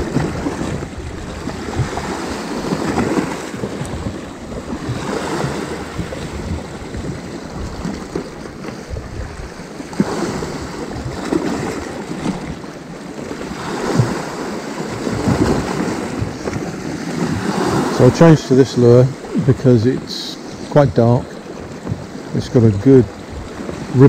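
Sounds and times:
waves breaking against rocks: 0:00.0 - 0:24.0.

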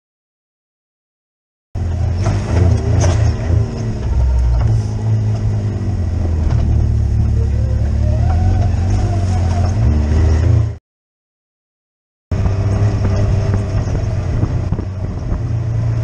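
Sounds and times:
utility vehicle engine running: 0:01.8 - 0:10.8, 0:12.3 - 0:16.0.

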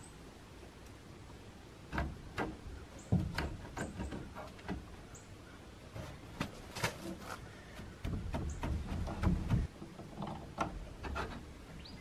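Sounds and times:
wooden shutter knocking and scraping: 0:01.8 - 0:05.1, 0:05.9 - 0:12.0.

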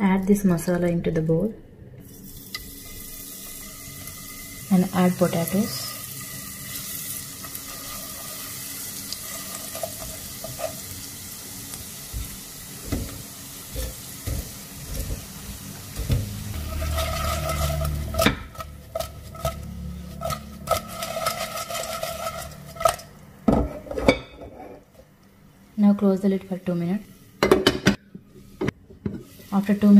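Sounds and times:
potatoes sizzling in oil: 0:02.1 - 0:23.2, 0:28.4 - 0:29.9
pot clattering and scraping: 0:06.7 - 0:10.9, 0:12.8 - 0:25.0.

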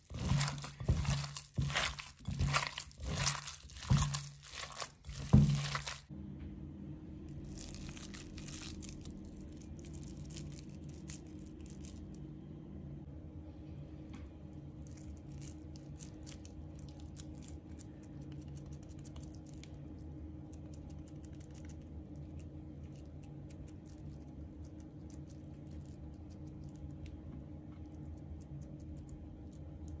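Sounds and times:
hands squelching minced meat: 0:00.0 - 0:06.1, 0:07.3 - 0:12.2
steady low hum: 0:00.0 - 0:30.0.

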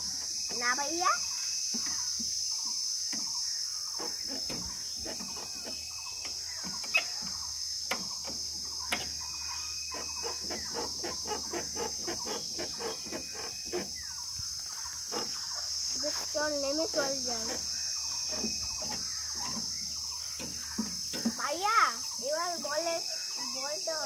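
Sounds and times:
insects buzzing: 0:00.0 - 0:24.0
chickens clucking: 0:03.9 - 0:21.6.

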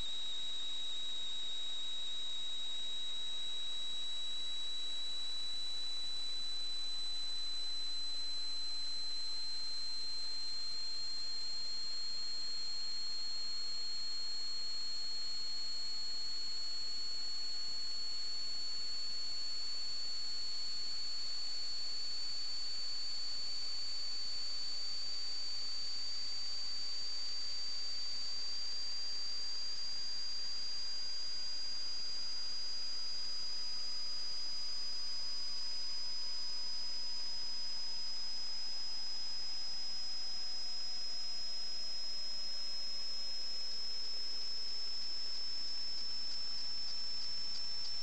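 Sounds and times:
high-pitched electronic whine: 0:37.2 - 0:48.0.

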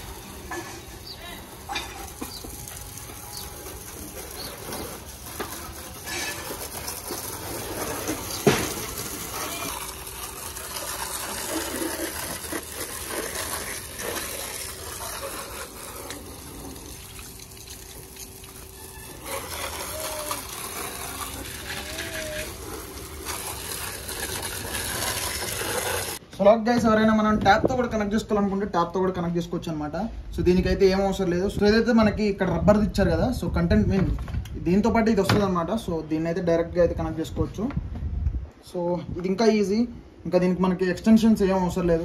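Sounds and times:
water running and splashing: 0:00.0 - 0:26.2.

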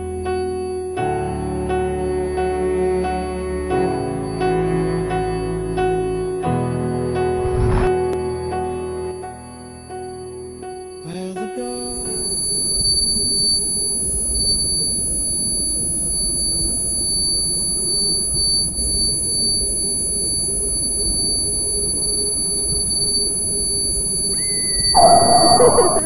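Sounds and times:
lower tone: 0:00.0 - 0:15.2, 0:18.6 - 0:26.0
low rumbling noise: 0:07.2 - 0:08.6, 0:25.0 - 0:26.0
high-pitched beep: 0:24.4 - 0:26.0.

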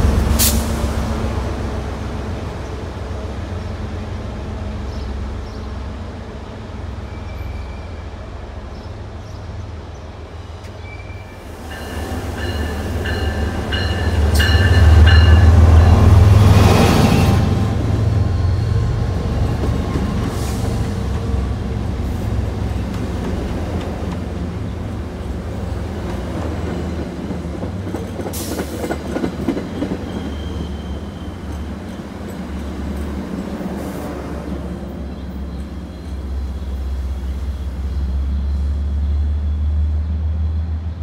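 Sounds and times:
train diesel rumble: 0:00.0 - 0:41.0
high wheel squeal: 0:17.1 - 0:19.5, 0:29.7 - 0:32.0.

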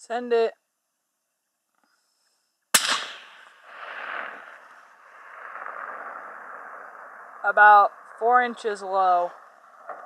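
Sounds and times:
rifle shot crack: 0:02.7 - 0:07.4
rolling echo: 0:02.7 - 0:10.0.

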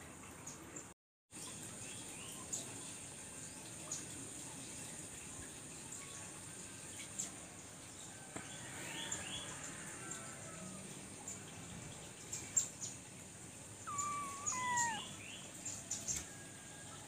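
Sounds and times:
small birds peeping: 0:08.4 - 0:16.3
bird call dropping in pitch: 0:13.9 - 0:15.1.

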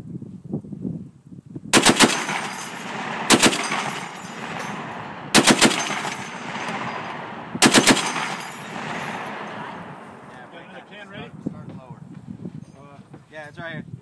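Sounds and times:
machine gun bursts echoing: 0:01.8 - 0:11.0.

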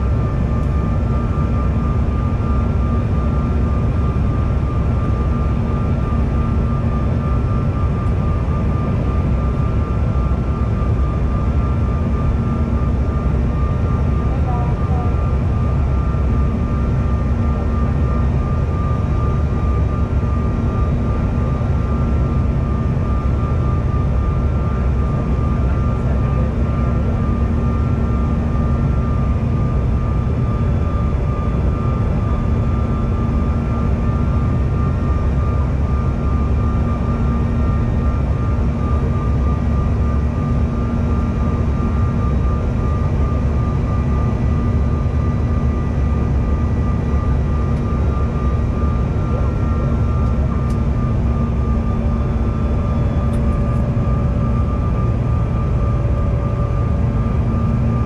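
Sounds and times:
engine whine: 0:00.0 - 0:58.0
jet engine rumble and airflow: 0:00.0 - 0:58.0.

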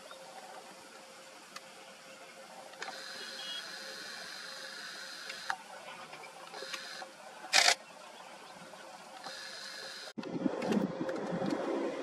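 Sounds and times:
camera zoom motor whirring: 0:02.8 - 0:05.6, 0:06.5 - 0:07.8, 0:09.2 - 0:10.1.

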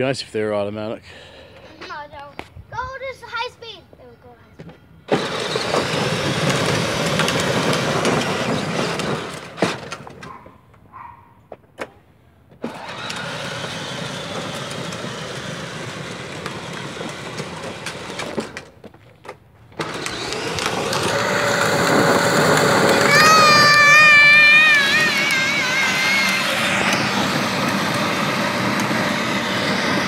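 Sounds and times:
wheels rolling on road: 0:04.6 - 0:11.8, 0:12.5 - 0:30.0
electric motor whirring: 0:05.1 - 0:09.6, 0:12.6 - 0:18.6, 0:19.8 - 0:30.0.

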